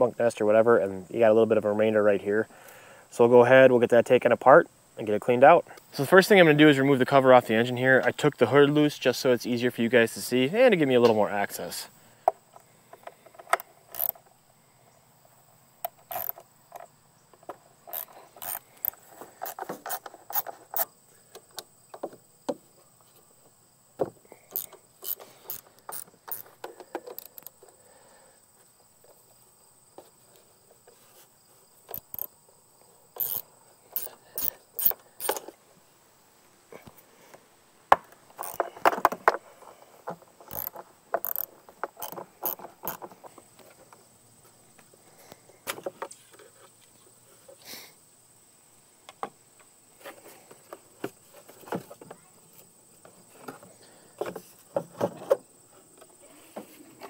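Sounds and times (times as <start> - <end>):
ratchet wrench clicking: 13.9 - 14.2, 16.1 - 16.4, 17.9 - 20.5, 24.5 - 26.5, 31.9 - 32.3, 33.2 - 33.4, 34.0 - 35.4, 38.4 - 38.6, 40.5 - 43.0
small knocks and rattles: 15.8 - 23.2, 37.9 - 44.9.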